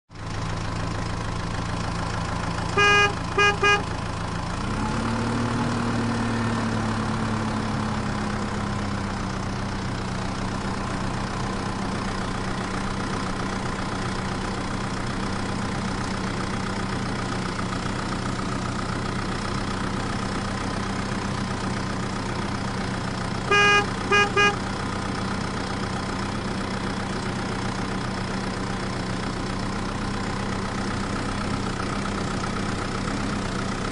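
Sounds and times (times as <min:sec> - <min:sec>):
vehicle engine running: 0:00.1 - 0:33.9
horn tooting: 0:02.7 - 0:04.0, 0:23.4 - 0:24.7.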